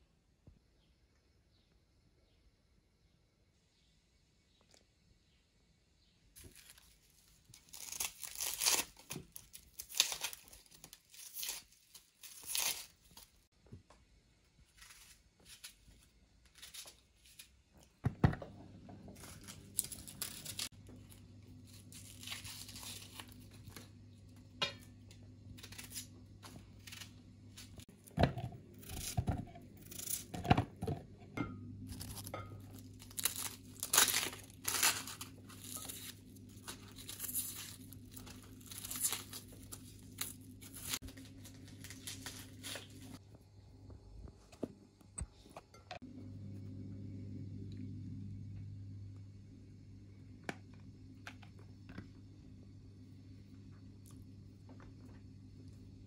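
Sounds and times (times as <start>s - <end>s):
low steady hum: 0.0s - 56.0s
vegetable skins tearing and crinkling: 6.4s - 13.5s, 14.6s - 17.9s, 19.2s - 24.0s, 25.5s - 30.7s, 31.8s - 43.2s.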